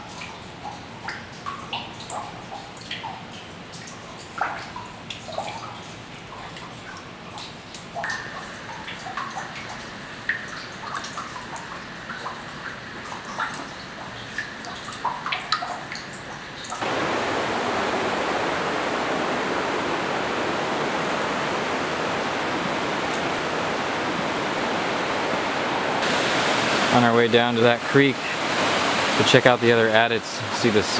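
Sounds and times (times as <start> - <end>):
water dripping into water: 0.0 - 17.4, 20.3 - 26.8
creek rushing: 16.8 - 30.9.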